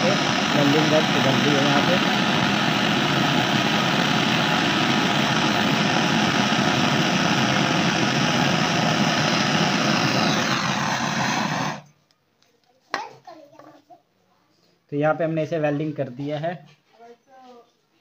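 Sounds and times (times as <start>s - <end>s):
gas torch flame hissing: 0.0s - 11.9s.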